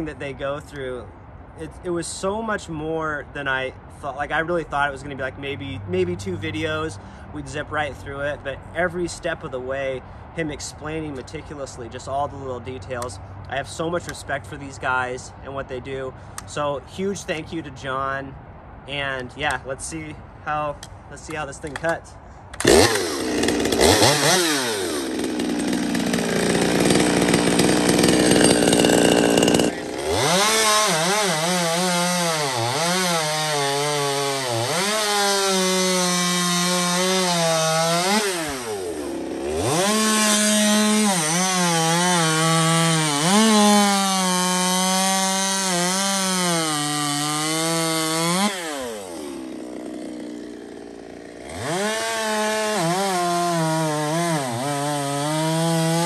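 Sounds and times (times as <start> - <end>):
chainsaw revving and cutting wood: 22.6 - 56.0.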